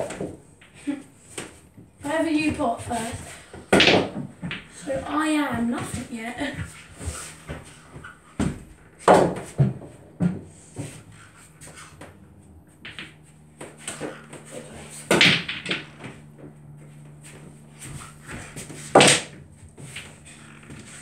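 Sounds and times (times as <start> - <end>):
pool balls clacking: 0.0 - 21.0.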